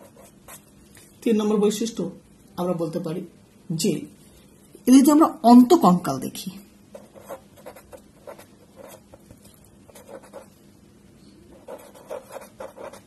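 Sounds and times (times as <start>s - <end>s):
pen writing on paper: 7.0s - 9.1s, 9.9s - 10.5s, 11.5s - 13.0s.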